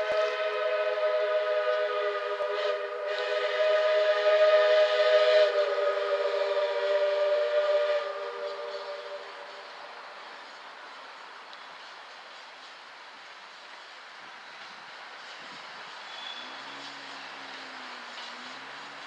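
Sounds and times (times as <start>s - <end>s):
steam locomotive whistle: 0.0s - 9.9s, 16.0s - 19.0s.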